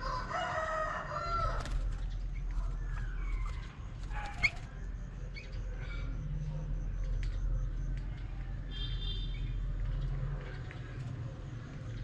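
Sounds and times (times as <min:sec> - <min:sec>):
rooster crowing: 0:00.0 - 0:01.7.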